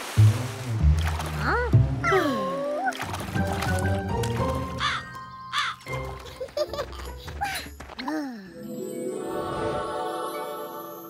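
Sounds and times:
background music: 0.0 - 11.0
cartoon bird cawing: 4.8 - 5.8.

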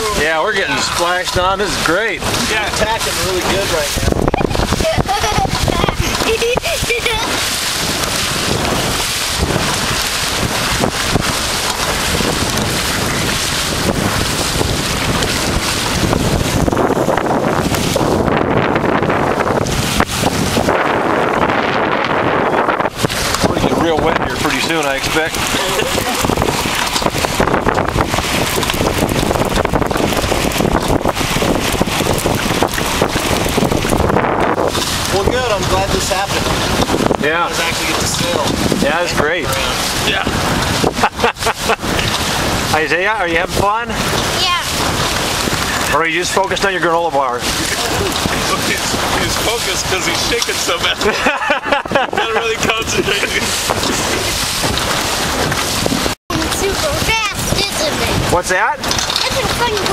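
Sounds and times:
water splashing against hull: 0.0 - 59.9
wind buffeting microphone: 0.0 - 59.9.

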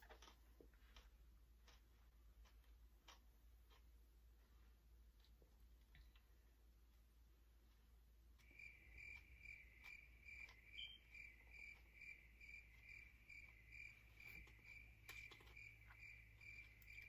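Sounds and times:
faint clicks: 0.0 - 17.0
faint cricket chirping: 8.4 - 17.0.

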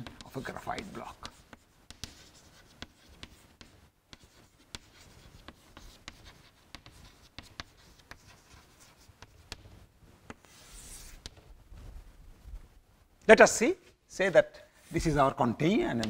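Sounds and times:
chalk scraping on blackboard: 0.0 - 9.7, 10.3 - 11.4
chalk tapping and scratching: 0.0 - 11.5.

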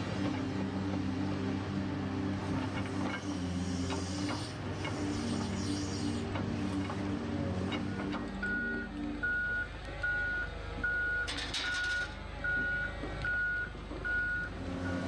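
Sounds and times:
reversing alarm beeping: 8.4 - 15.0.

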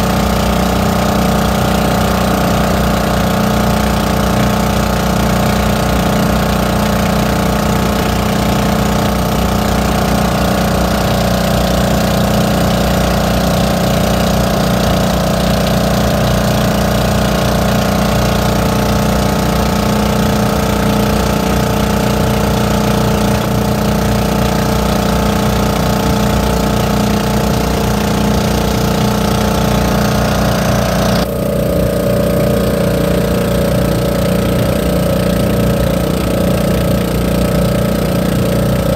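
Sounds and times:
boat engine running: 0.0 - 38.9
water rushing along hull: 0.0 - 38.9.

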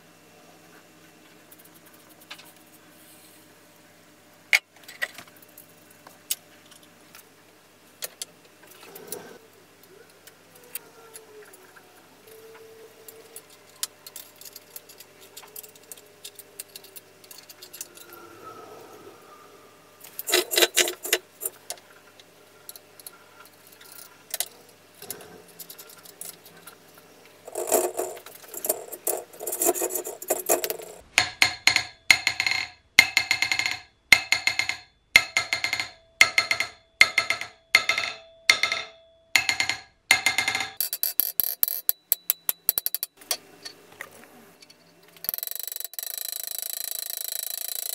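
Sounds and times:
wrench clicking: 27.5 - 31.0, 39.4 - 43.4, 45.2 - 47.9
hammer ringing on anvil: 33.0 - 40.8.

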